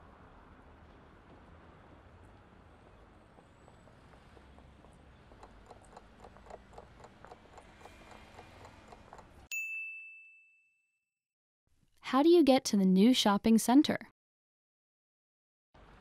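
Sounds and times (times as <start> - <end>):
faint clock ticking: 4.0 - 9.5
bright bell ding: 9.5 - 11.0.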